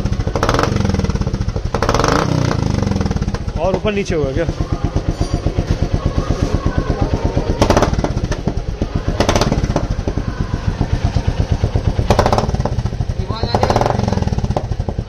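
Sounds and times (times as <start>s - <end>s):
clattering engine knocks: 0.0s - 15.0s
motorcycle engine idling: 0.0s - 15.0s.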